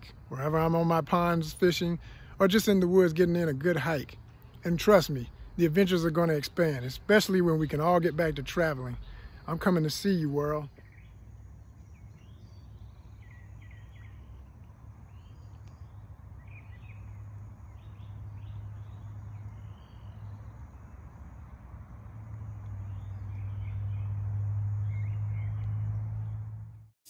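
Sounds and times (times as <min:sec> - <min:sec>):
small birds chirping: 0:00.0 - 0:26.8.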